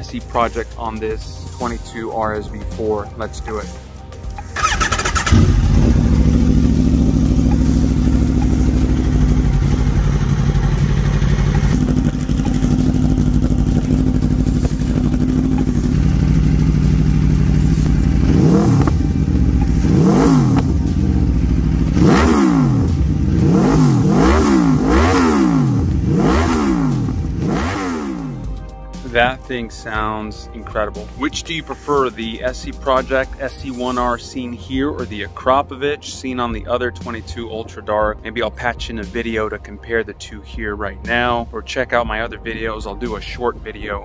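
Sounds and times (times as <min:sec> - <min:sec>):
motorcycle engine idling: 0:04.5 - 0:28.6
motorcycle engine revving: 0:04.5 - 0:28.6.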